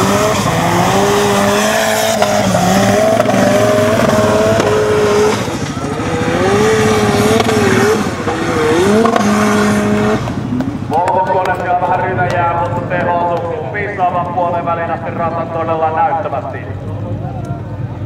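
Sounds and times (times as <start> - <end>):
buggy engine revving hard: 0.0 - 10.9.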